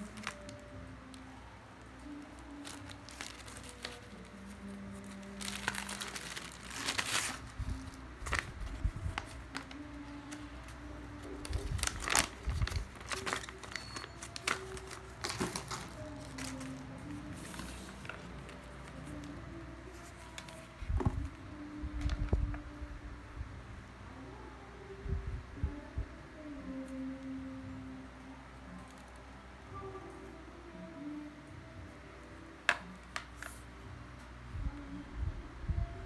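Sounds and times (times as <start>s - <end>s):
plastic bag crinkling: 0.0s - 1.2s, 2.0s - 10.5s, 11.2s - 19.3s
paper manual rustling: 0.0s - 1.4s, 2.0s - 21.4s, 32.7s - 33.7s.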